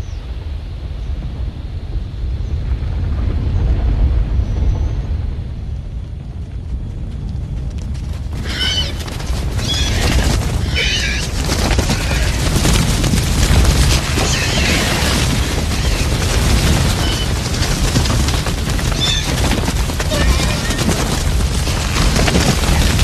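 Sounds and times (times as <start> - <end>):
deep continuous rumble: 0.0 - 23.0
high-pitched creature calls: 8.4 - 9.0, 9.6 - 12.4.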